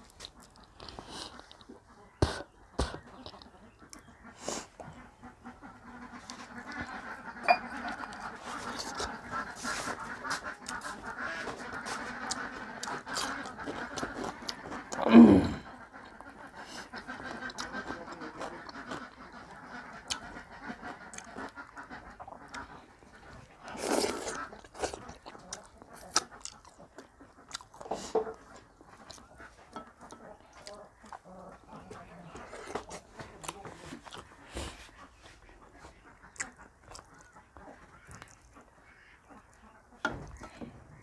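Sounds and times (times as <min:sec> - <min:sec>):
wet chewing and mouth smacks: 0:00.0 - 0:04.1, 0:06.0 - 0:15.1, 0:15.9 - 0:38.7.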